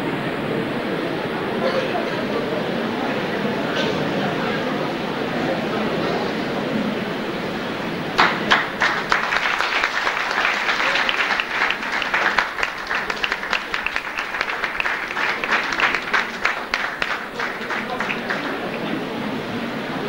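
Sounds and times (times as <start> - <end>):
audience applauding: 8.0 - 19.6.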